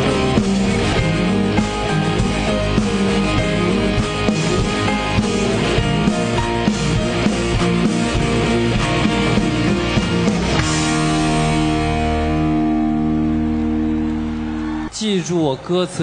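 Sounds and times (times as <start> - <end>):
drum kit beat: 0.0 - 12.6
guitar: 0.0 - 15.0.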